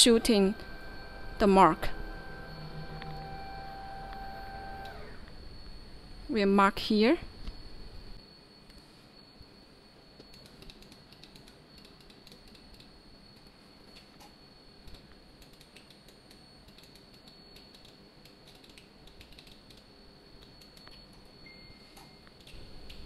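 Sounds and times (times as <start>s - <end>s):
high-pitched whine: 0.0s - 15.3s
computer keys clicking: 10.2s - 14.3s, 14.9s - 21.2s.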